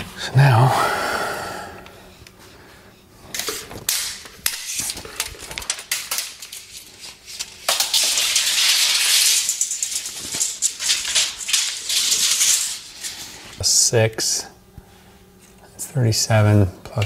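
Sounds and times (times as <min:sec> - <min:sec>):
wire pulled off spool rattling: 0:04.0 - 0:13.2.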